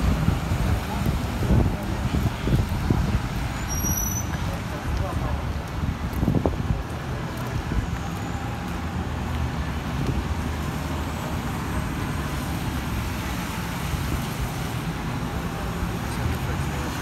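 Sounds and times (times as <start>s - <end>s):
wind rumble on microphone: 0.0s - 3.7s, 4.3s - 8.2s, 9.3s - 10.7s
traffic hiss on wet roads: 0.0s - 17.0s.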